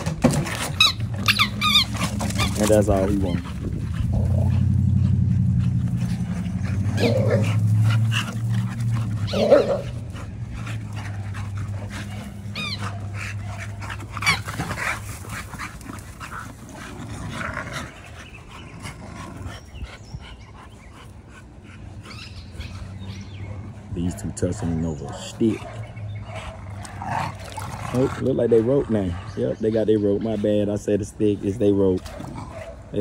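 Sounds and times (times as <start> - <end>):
dogs barking: 0.0 - 33.0
dogs whining yips: 0.6 - 4.4, 6.2 - 10.0, 11.9 - 14.7, 22.0 - 23.7.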